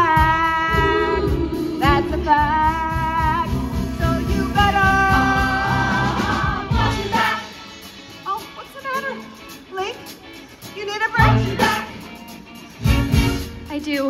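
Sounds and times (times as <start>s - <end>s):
orchestra and chorus performing: 0.2s - 7.9s.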